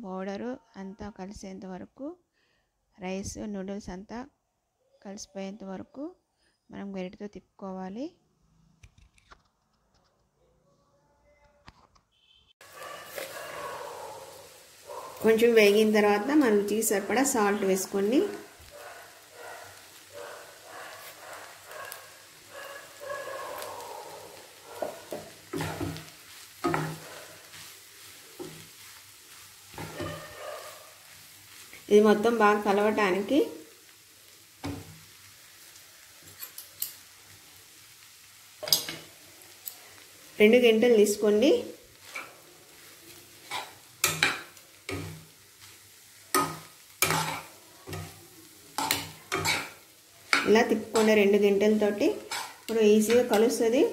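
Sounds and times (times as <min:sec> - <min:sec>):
faint frying sizzle: 0:12.1 - 0:53.9
wooden spatula scraping a pan: 0:12.6 - 0:14.5, 0:19.8 - 0:33.2, 0:41.6 - 0:53.9
spoon scraping and knocking on wok: 0:24.7 - 0:27.6, 0:29.7 - 0:30.5, 0:38.6 - 0:39.1, 0:43.4 - 0:45.3, 0:46.3 - 0:48.2, 0:48.8 - 0:51.3, 0:52.1 - 0:53.6.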